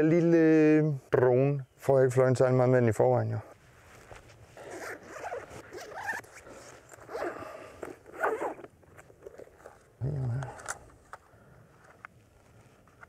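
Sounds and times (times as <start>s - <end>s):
zipper rasping open: 4.6s - 10.8s.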